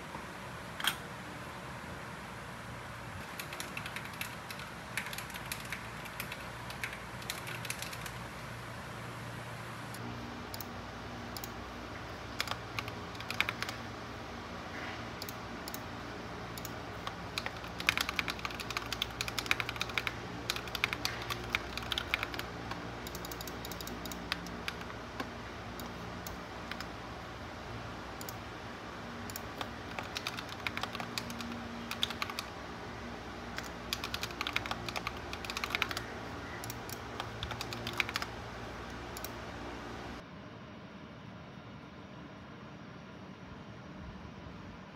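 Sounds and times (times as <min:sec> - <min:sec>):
steady low hum: 0:00.0 - 0:44.9
mechanical keyboard typing: 0:03.2 - 0:08.2, 0:10.5 - 0:11.6, 0:12.2 - 0:13.9, 0:15.2 - 0:15.9, 0:16.5 - 0:27.0, 0:29.2 - 0:32.6, 0:33.4 - 0:39.4.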